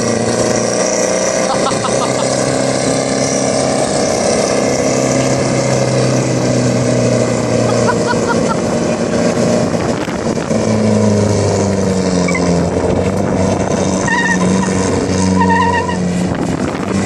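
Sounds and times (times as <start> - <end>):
car engine revving: 0.0 - 17.0
tyres squealing on tarmac: 14.0 - 16.1.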